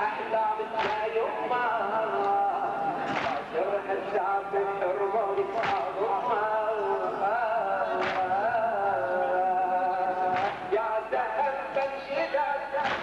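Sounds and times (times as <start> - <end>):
man chanting a lament: 0.0 - 13.0
chest-beating slaps: 0.8 - 1.1, 3.0 - 3.5, 5.6 - 5.9, 8.0 - 8.4, 10.3 - 10.7, 12.8 - 13.0.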